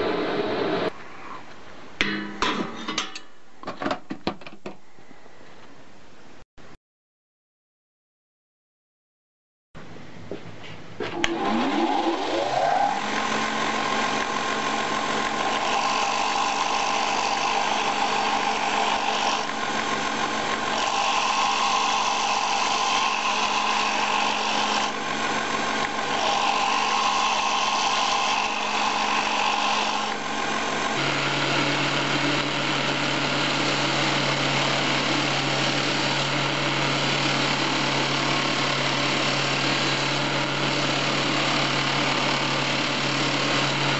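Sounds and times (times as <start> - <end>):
belt grinder rasp: 11.2 - 43.9
electric grinder motor running: 11.2 - 43.9.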